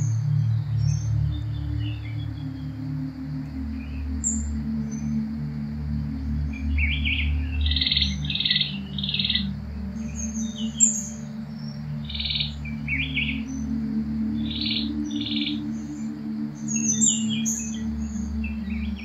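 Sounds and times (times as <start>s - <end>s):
birds buzzy trilled calls: 0.0s - 19.0s
low steady hum: 0.0s - 19.0s.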